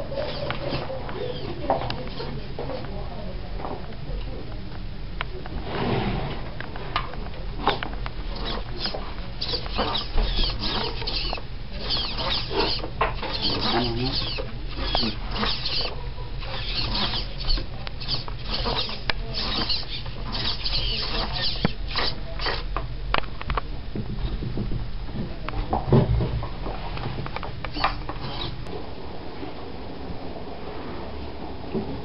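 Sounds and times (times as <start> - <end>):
servos whirring and buzzing: 0.0 - 2.5, 7.6 - 22.8, 27.6 - 28.7
low steady hum: 0.0 - 32.0.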